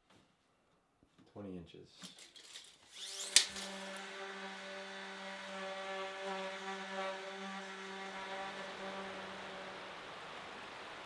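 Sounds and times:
power tool motor whirring: 2.9 - 9.8.

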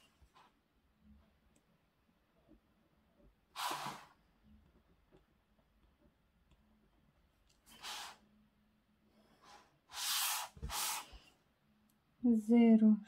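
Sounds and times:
hissy breath puffs: 7.6 - 8.2, 9.1 - 11.4.

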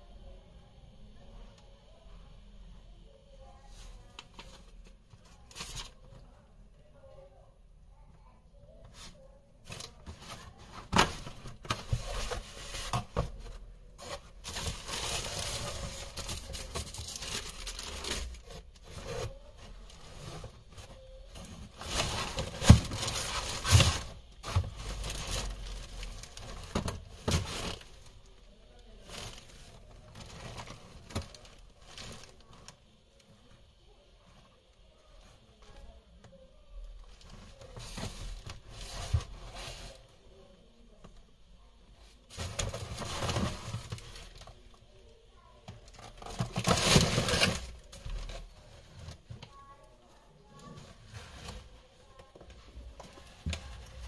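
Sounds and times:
paper and cardboard rustling: 3.7 - 6.4, 8.8 - 28.3, 36.8 - 40.1, 42.2 - 44.6, 45.7 - 49.7.

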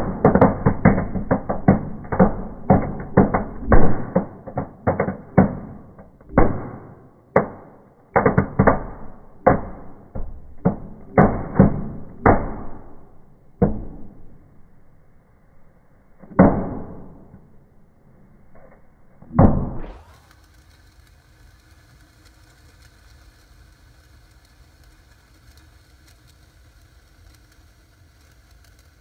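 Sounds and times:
fireworks bangs and crackling: 0.0 - 14.5, 19.3 - 29.0.

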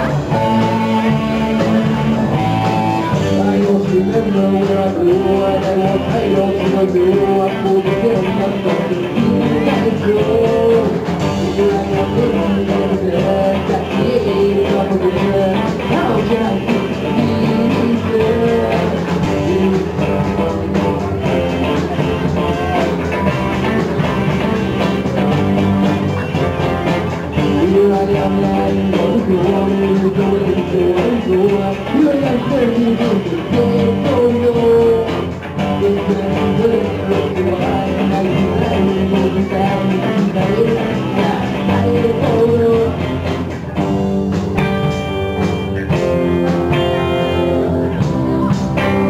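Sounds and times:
man singing: 0.0 - 44.8
rock band playing live: 0.0 - 49.0.

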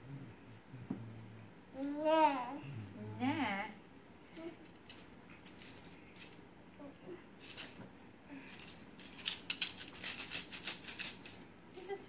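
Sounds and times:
toy rattle jingling: 4.7 - 6.4, 7.4 - 12.0.

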